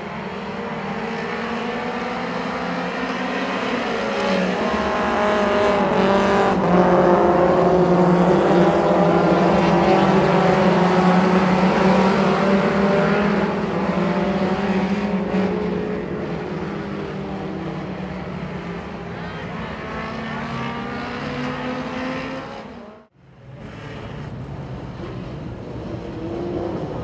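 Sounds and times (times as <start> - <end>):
race car engines passing: 0.0 - 27.0.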